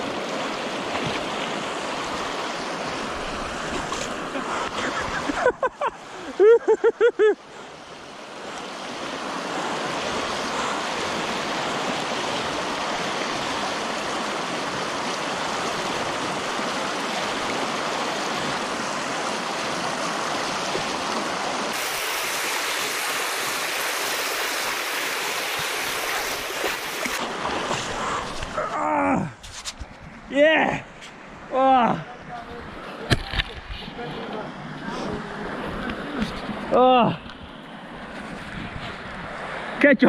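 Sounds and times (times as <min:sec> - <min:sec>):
river water rushing over rocks: 0:00.0 - 0:29.4.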